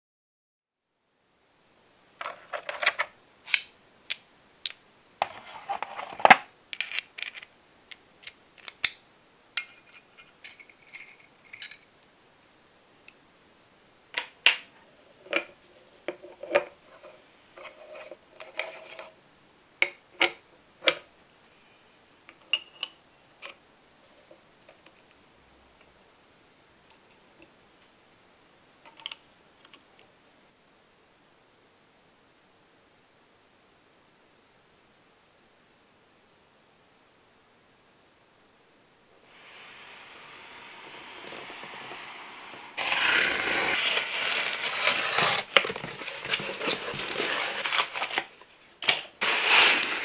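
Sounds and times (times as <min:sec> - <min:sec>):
small metal parts clinking: 0:06.1 - 0:07.5
metal parts rattling: 0:06.8 - 0:07.5.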